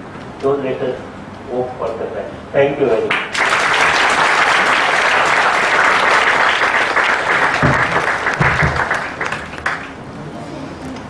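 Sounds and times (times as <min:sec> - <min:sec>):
audience applauding: 0:03.1 - 0:10.2.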